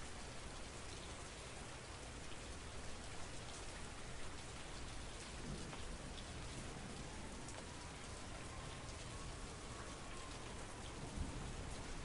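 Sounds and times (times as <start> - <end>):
steady rain falling: 0.0 - 12.0
sharp raindrop ticks: 4.9 - 6.7.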